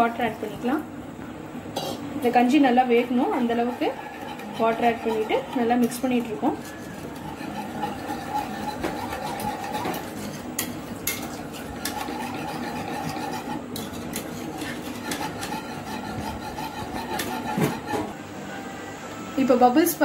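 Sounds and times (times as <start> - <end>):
spoon stirring porridge: 3.4 - 18.1.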